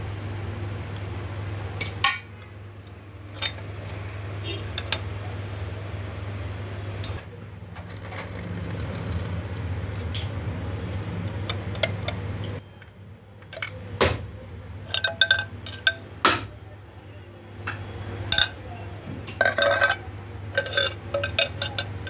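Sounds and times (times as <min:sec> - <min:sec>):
metal tools clinking on metal: 0:03.3 - 0:03.6, 0:04.7 - 0:05.1, 0:07.0 - 0:08.4, 0:14.9 - 0:16.1, 0:17.7 - 0:18.6, 0:19.3 - 0:22.0.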